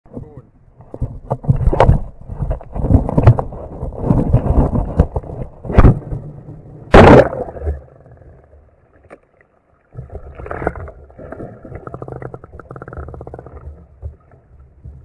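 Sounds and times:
loud splash: 0:06.9 - 0:07.9
muffled underwater rumbling: 0:09.9 - 0:15.0.

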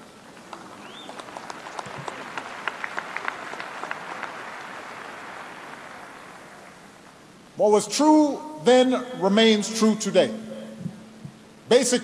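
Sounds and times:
audience applauding: 0:00.2 - 0:06.8.

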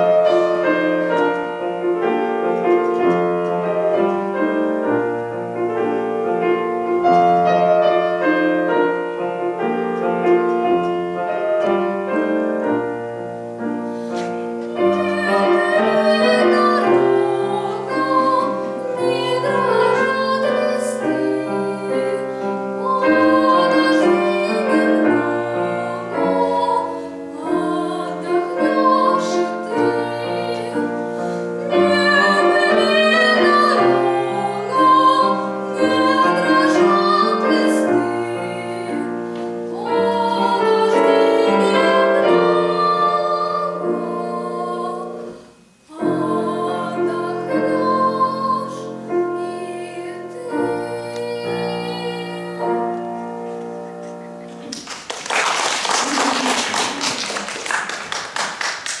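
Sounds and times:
grand piano accompaniment: 0:00.0 - 0:59.0
girl singing art song: 0:14.1 - 0:54.7
audience applauding: 0:54.6 - 0:59.0.

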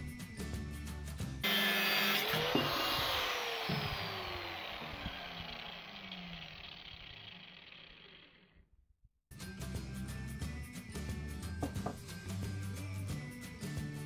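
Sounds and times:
angle grinder whine spinning down: 0:01.4 - 0:08.6.

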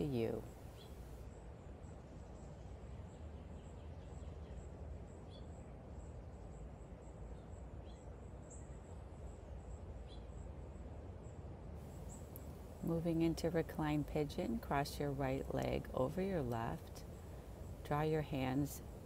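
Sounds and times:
low background rumble: 0:11.2 - 0:19.0.

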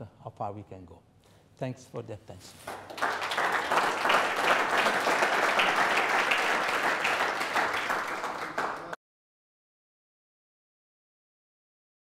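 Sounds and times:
audience applauding: 0:02.7 - 0:09.0.

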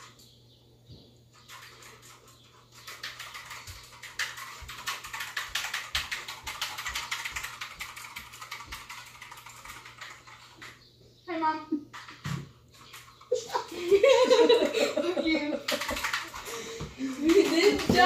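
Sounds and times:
fast typing on keyboard: 0:01.4 - 0:10.8, 0:15.4 - 0:18.0.

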